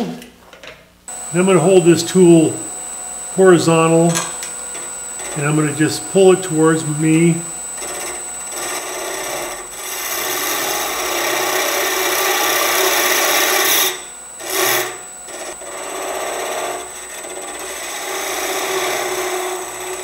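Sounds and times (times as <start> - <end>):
high whine: 1.1 - 15.7
lathe tool shaving wood: 1.1 - 20.0.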